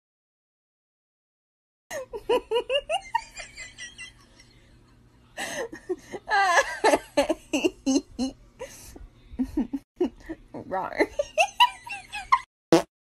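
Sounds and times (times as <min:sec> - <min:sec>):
person laughing: 0:01.9 - 0:04.5, 0:05.4 - 0:10.4.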